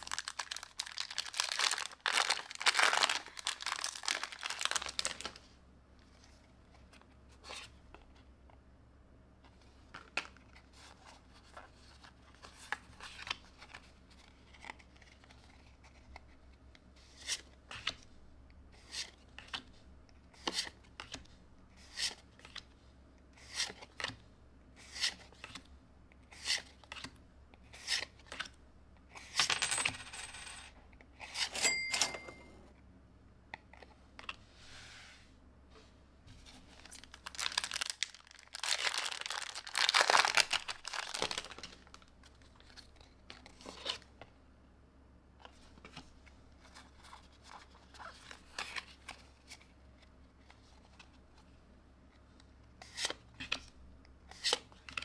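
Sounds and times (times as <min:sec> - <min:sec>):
foil pack tearing open: 0:00.0 - 0:05.2, 0:37.2 - 0:41.6.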